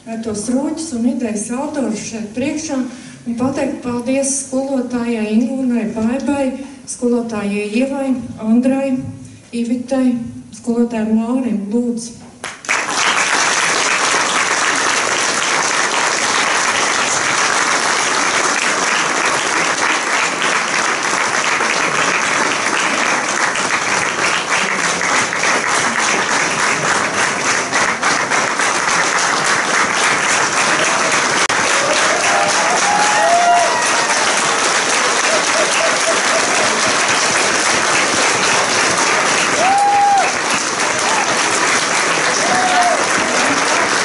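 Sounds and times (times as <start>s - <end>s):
crowd applauding: 12.4s - 44.0s.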